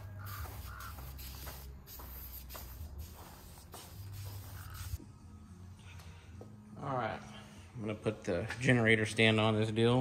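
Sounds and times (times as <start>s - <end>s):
spray paint can hissing: 0.0s - 5.0s.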